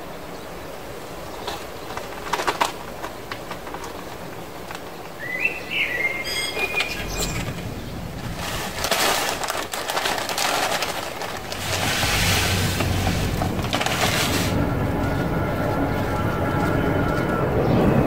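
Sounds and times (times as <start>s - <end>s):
soil rustling and scraping: 6.8s - 17.9s.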